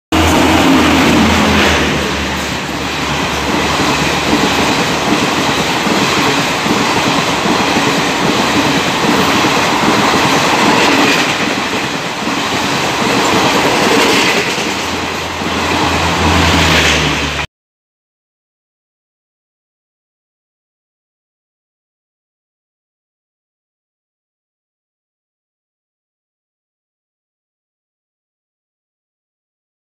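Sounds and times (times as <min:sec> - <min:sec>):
train wheels rumbling on rail: 0:00.1 - 0:17.5.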